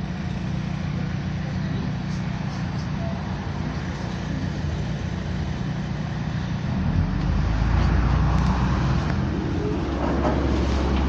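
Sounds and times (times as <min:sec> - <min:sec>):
bus engine drone: 0:00.0 - 0:11.0
road noise: 0:00.0 - 0:11.0.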